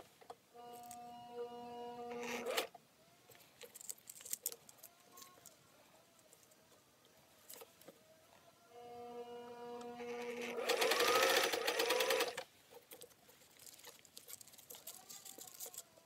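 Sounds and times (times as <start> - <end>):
sewing machine motor humming: 9.2 - 12.4.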